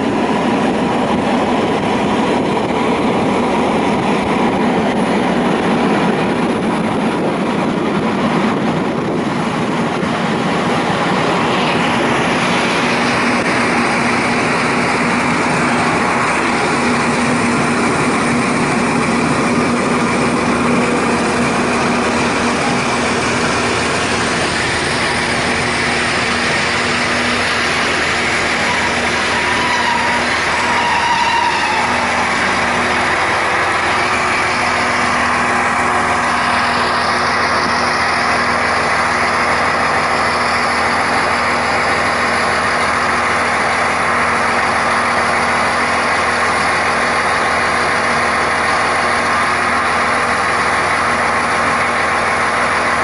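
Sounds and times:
railcar engine humming: 0.0 - 53.0.

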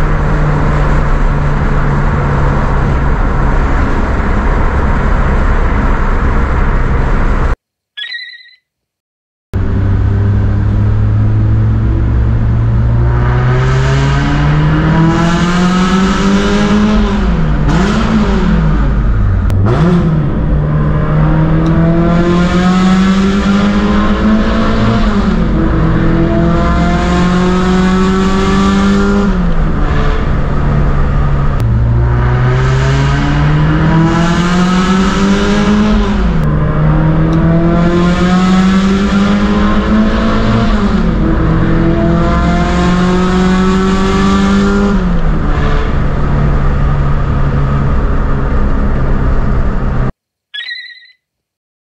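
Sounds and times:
car engine revving through gears: 9.6 - 50.1.

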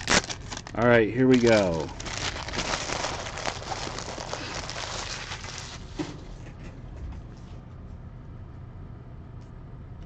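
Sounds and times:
plastic wrapping crinkling: 0.0 - 6.1.

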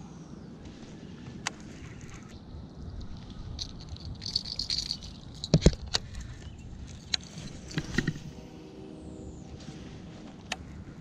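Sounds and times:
fishing gear clicks and knocks: 1.5 - 8.3
gear rustling: 1.6 - 8.4.

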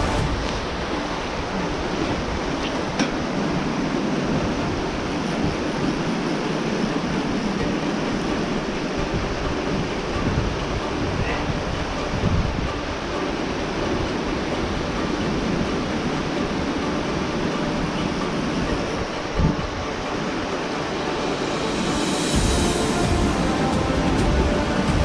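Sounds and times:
creek water rushing over rocks: 0.0 - 25.0.

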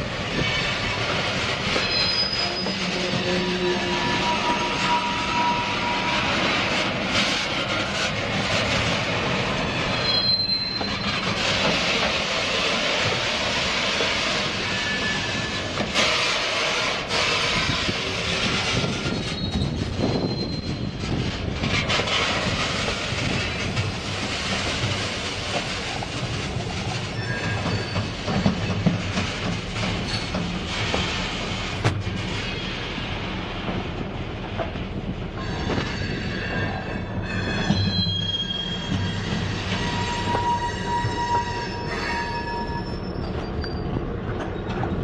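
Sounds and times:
train wheels rumbling and clicking: 0.0 - 45.0
high-pitched wheel squeals: 1.7 - 6.3, 9.9 - 11.2, 14.6 - 15.7, 19.1 - 21.0, 27.1 - 28.3, 35.4 - 44.0.

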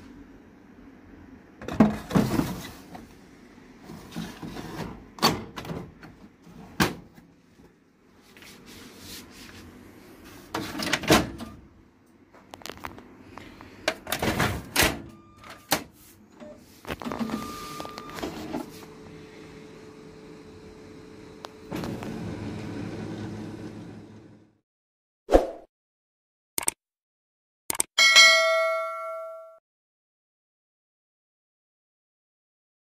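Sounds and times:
steady machine hum: 16.2 - 24.5.

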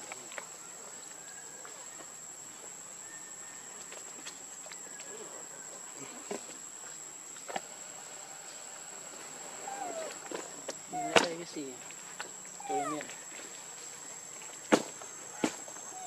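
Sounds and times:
insect drone: 0.0 - 16.0
faint chirps: 12.4 - 13.3.

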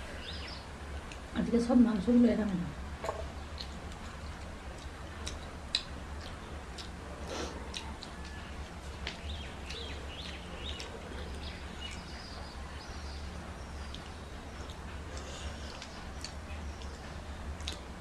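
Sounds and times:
steady low hum: 0.0 - 18.0
chewing mouth clicks and smacks: 3.1 - 12.3, 13.8 - 17.9.

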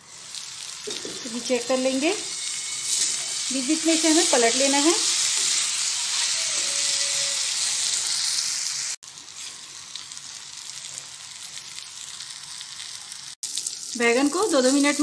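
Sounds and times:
eggplant sizzling in oil: 0.0 - 15.0.

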